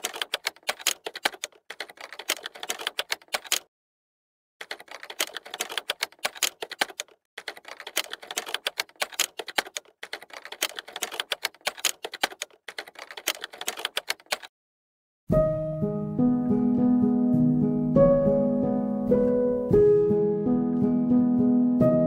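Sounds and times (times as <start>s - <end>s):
keyboard typing clicks: 0.0s - 3.7s, 4.6s - 14.5s.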